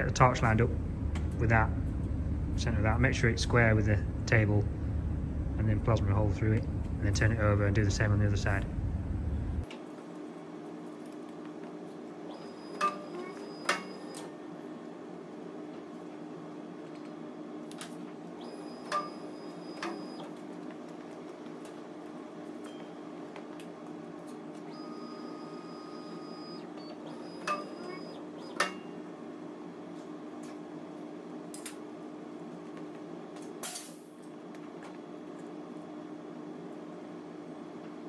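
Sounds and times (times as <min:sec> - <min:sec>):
low workshop hum: 0:00.0 - 0:38.0.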